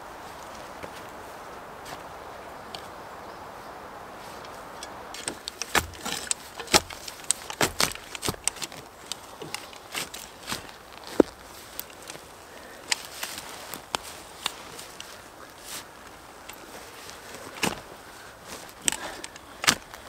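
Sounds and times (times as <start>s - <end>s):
hand shovels digging soil: 4.2s - 20.0s.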